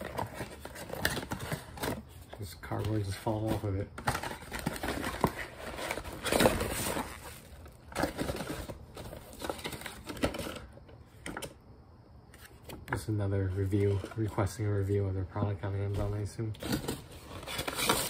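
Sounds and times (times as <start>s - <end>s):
paper crinkling: 0.0s - 10.7s.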